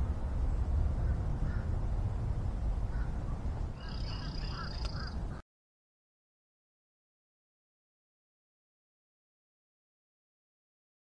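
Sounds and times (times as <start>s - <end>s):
low rumble: 0.0s - 5.4s
birds calling: 1.0s - 1.8s, 2.9s - 5.4s.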